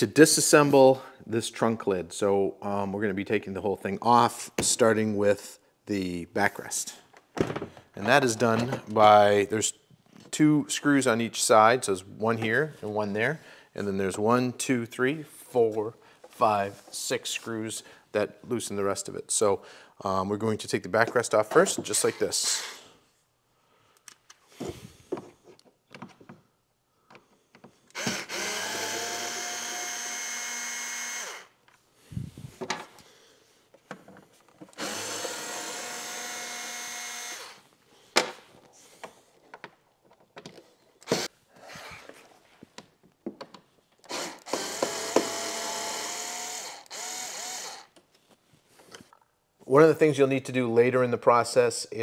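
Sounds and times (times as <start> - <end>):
cordless power driver whining: 27.9 - 31.5, 34.7 - 37.6, 41.0 - 41.3, 44.0 - 48.0.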